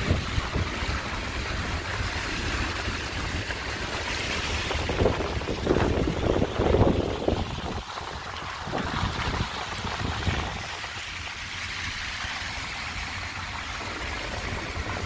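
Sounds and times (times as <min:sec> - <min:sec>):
wind blowing across microphone: 0:04.3 - 0:11.0.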